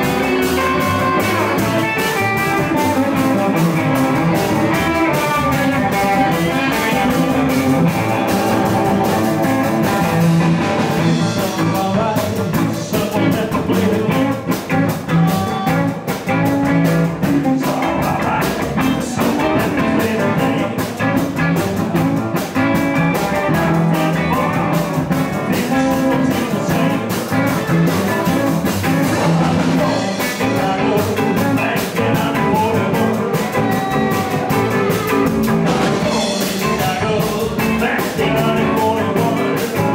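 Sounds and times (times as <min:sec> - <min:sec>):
drum kit steady beat: 0:00.0 - 0:39.9
electric guitar: 0:00.0 - 0:39.9.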